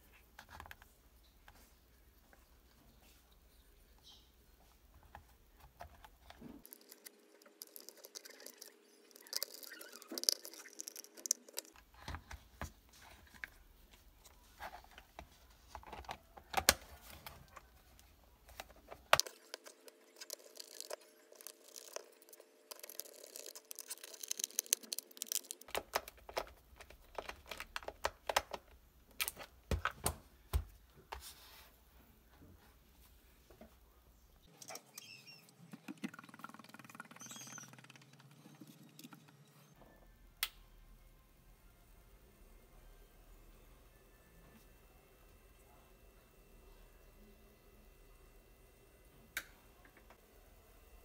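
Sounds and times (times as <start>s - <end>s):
plastic parts clicking and tapping: 14.6s - 30.7s.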